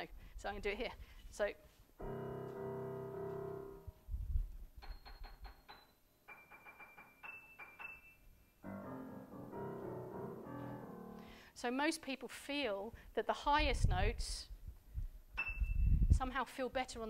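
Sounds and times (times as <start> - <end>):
piano playing: 2.0 - 4.0, 5.7 - 11.4.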